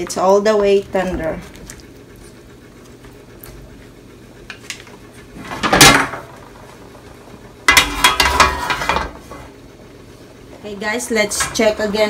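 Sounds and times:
metal cover clattering on wok: 0:07.7 - 0:09.2.

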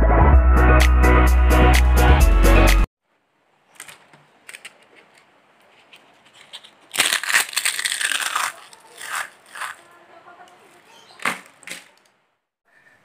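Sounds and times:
leaf chips rustling: 0:03.7 - 0:12.1
chips crunching in a hand: 0:06.2 - 0:10.0.

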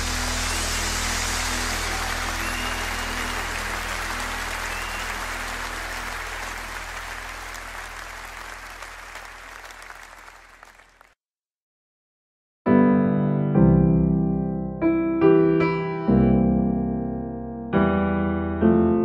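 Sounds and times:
applause: 0:00.0 - 0:11.2.

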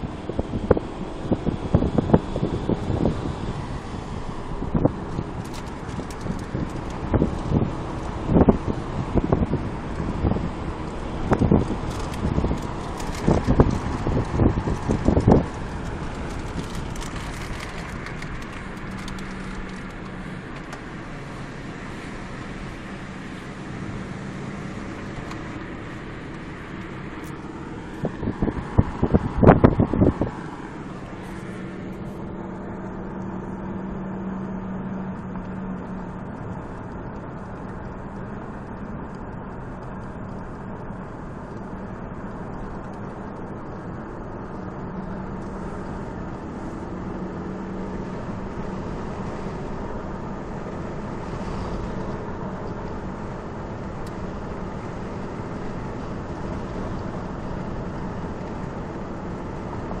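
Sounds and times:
car engine hum: 0:00.0 - 1:00.0
tyres on pavement: 0:04.4 - 0:08.3, 0:10.8 - 0:32.8.

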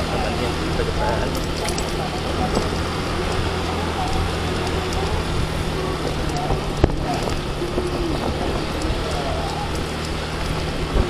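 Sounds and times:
motorcycle engine hum: 0:00.0 - 0:11.0
wind and road noise: 0:00.0 - 0:11.0.

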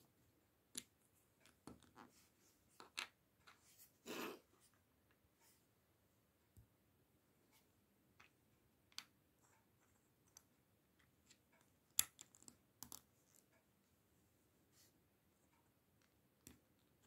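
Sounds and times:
plastic bricks clicking together: 0:12.0 - 0:13.0.

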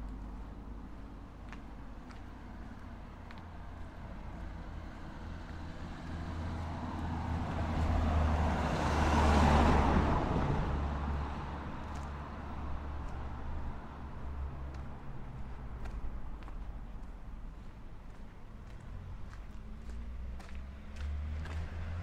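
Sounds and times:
car driving past: 0:05.2 - 0:12.1, 0:18.8 - 0:22.0.

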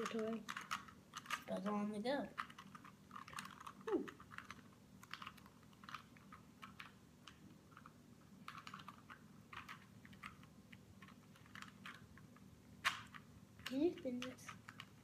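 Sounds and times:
plastic puzzle cube clicking: 0:00.0 - 0:15.0.

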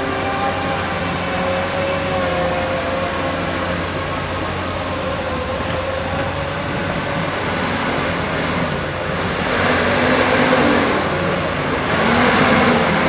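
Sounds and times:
faint high squeaks: 0:00.0 - 0:09.2
diesel engine drone with whine: 0:00.0 - 0:13.0.

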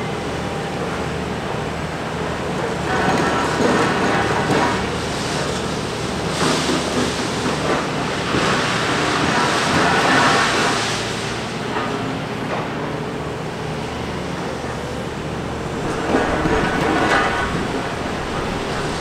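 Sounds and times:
excavator diesel engine: 0:00.0 - 0:19.0
harsh scraping noise: 0:15.2 - 0:19.0.

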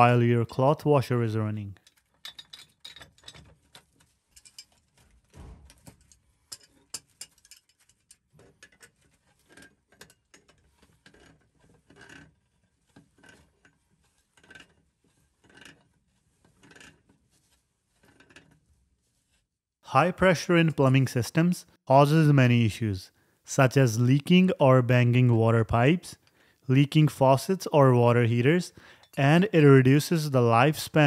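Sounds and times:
metal tools clicking and scraping: 0:01.8 - 0:05.0, 0:05.9 - 0:12.3.

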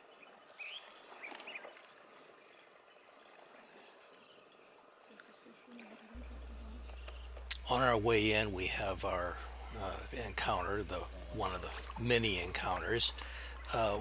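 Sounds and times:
high-pitched insect chorus: 0:00.0 - 0:14.0
low steady hum: 0:05.8 - 0:14.0.

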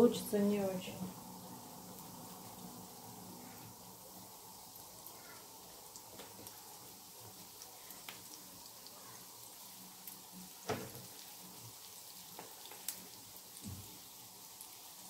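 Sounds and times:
dough sizzling in hot oil: 0:00.0 - 0:15.0.

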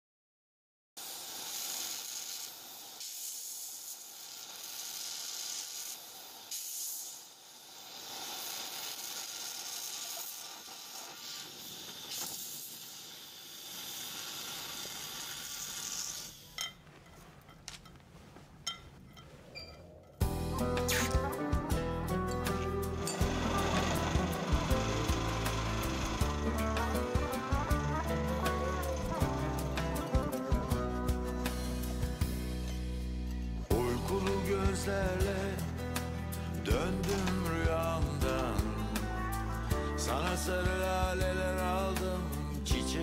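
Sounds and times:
gas torch flame hissing: 0:01.0 - 0:16.6, 0:20.6 - 0:21.4, 0:22.4 - 0:32.4.

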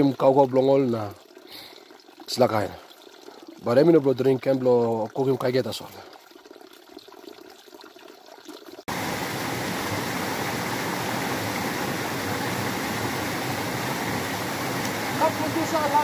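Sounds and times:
creek water rushing: 0:08.9 - 0:16.0.

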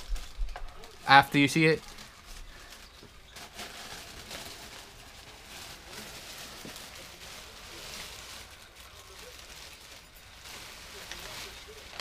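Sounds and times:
wrapping paper rustling: 0:00.0 - 0:12.0.

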